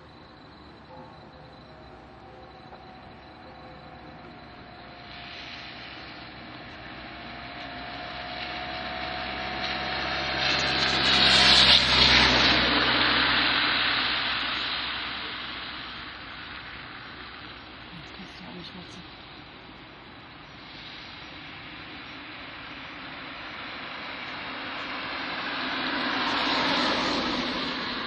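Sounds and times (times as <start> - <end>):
vehicle passing by: 0.0 - 18.8, 23.0 - 28.0.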